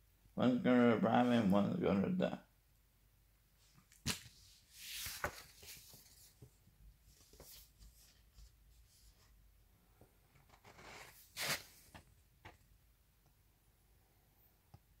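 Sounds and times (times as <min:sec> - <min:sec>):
rustling paper and packaging: 0:03.9 - 0:08.3, 0:10.6 - 0:12.1.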